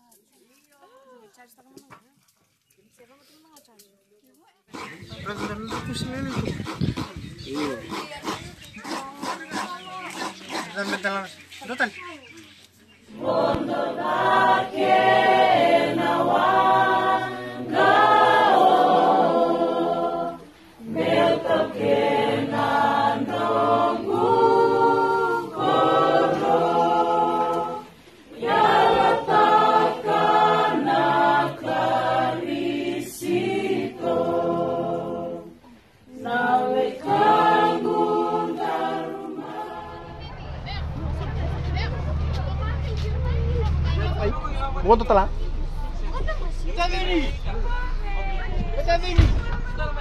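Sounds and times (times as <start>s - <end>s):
choir singing in harmony: 13.1s - 42.3s.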